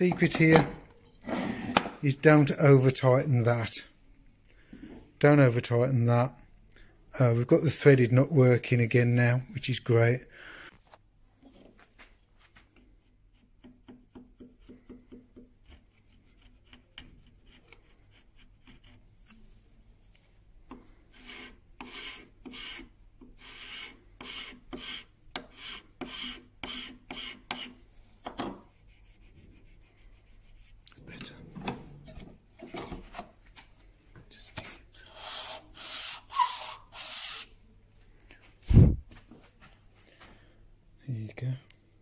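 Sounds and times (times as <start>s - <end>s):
filing wooden block: 13.3s - 19.1s, 21.0s - 30.7s, 35.1s - 37.5s.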